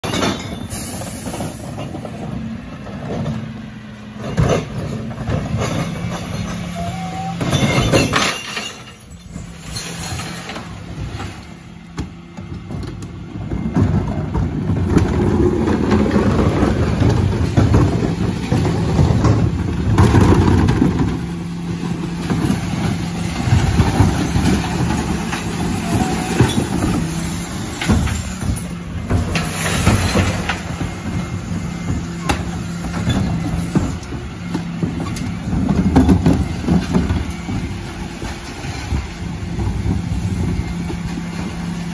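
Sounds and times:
refuse lorry hydraulics working: 0.1 - 12.3
bins clattering and rattling: 4.2 - 11.6, 12.5 - 41.9.

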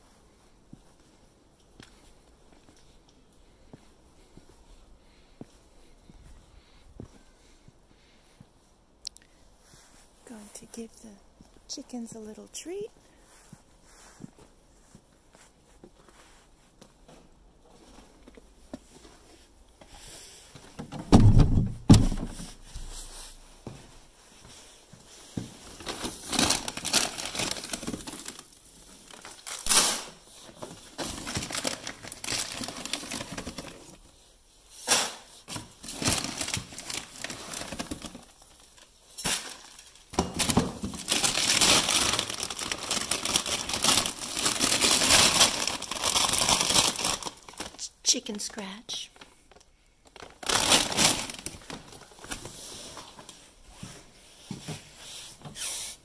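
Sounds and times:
heavy thumps: 20.8 - 22.9
plastic bags crinkling: 25.5 - 34.2, 35.3 - 53.4.

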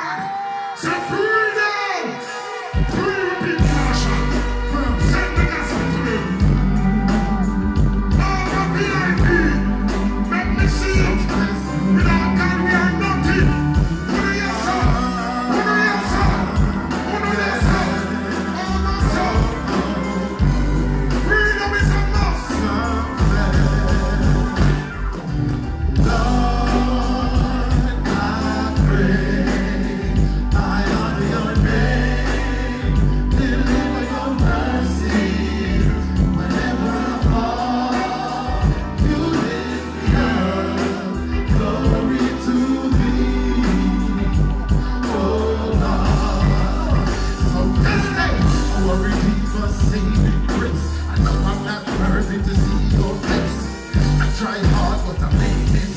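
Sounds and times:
vocals: 0.0 - 55.9
heavy bass beat: 41.2 - 55.9.

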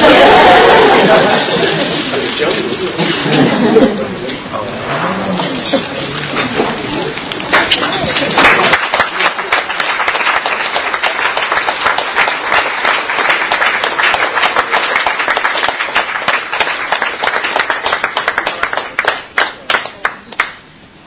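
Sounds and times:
guests applauding: 0.0 - 3.0, 7.1 - 20.7.

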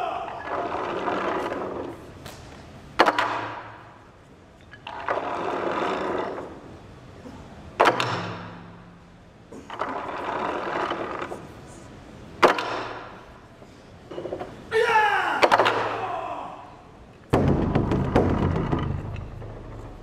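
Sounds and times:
person shouting: 0.0 - 0.4, 14.7 - 16.9.

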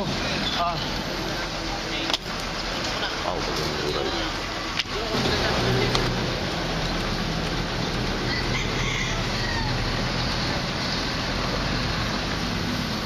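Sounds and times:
low engine hum: 0.0 - 13.0
rooster crowing faintly: 8.2 - 10.1.

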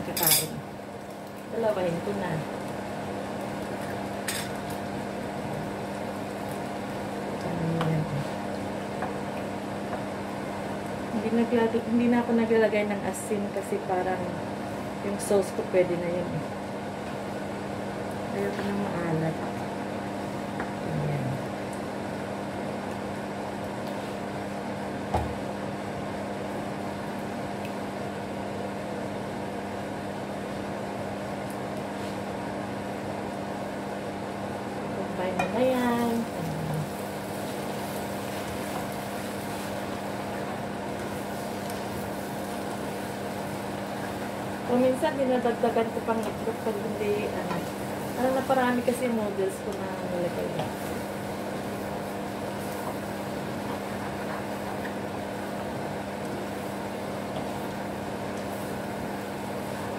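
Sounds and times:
frying sizzle: 0.0 - 59.9
mechanical hum: 0.0 - 59.9
egg sizzling in a pan: 35.8 - 59.9.

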